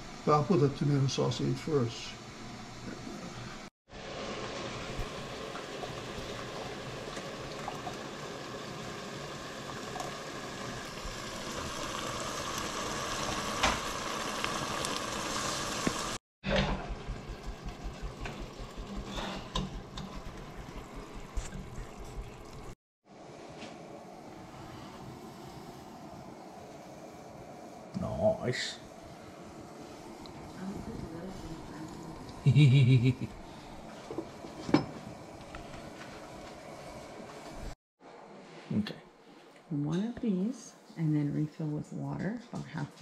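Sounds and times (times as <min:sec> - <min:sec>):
stew bubbling in a pot: 0:03.9 - 0:22.8.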